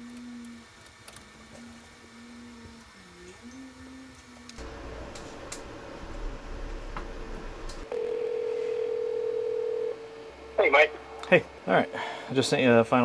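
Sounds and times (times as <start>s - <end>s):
telephone ringing tone: 7.9s - 10.1s.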